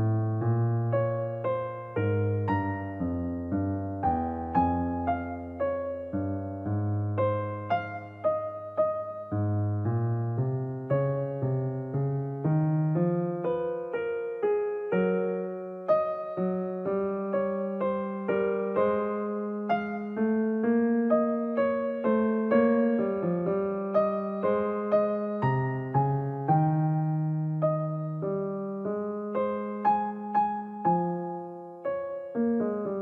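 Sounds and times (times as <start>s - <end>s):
slow piano music: 0.0s - 33.0s.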